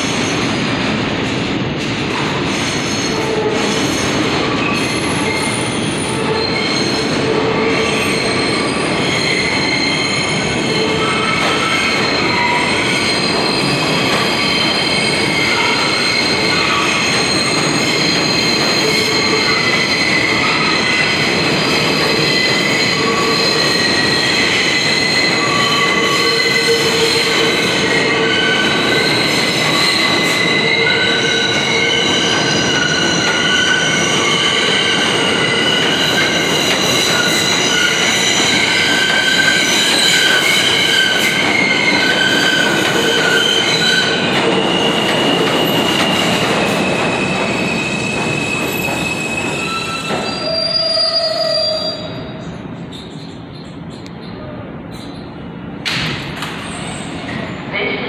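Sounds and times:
train wheels squealing: 2.5 - 55.4, 56.6 - 57.7.

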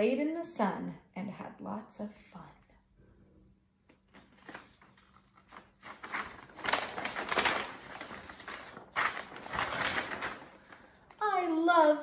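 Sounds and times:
paper pages rustling: 3.9 - 11.2.

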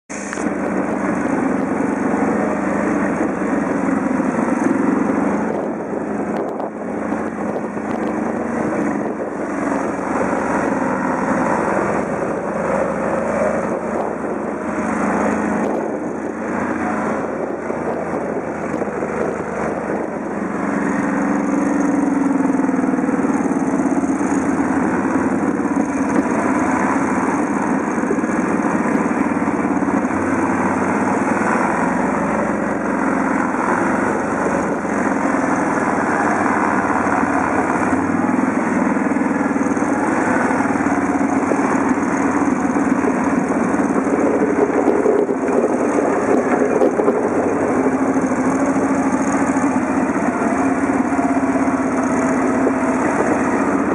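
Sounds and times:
quad bike engine running: 0.1 - 53.9.

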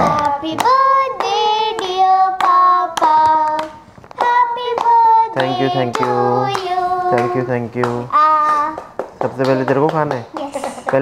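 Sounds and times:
hand clapping: 0.2 - 8.1, 8.7 - 11.0
children singing: 4.2 - 7.6.

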